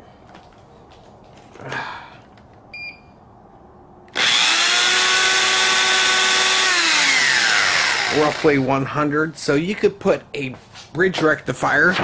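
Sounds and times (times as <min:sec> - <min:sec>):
electric drill whining: 0:04.1 - 0:08.7.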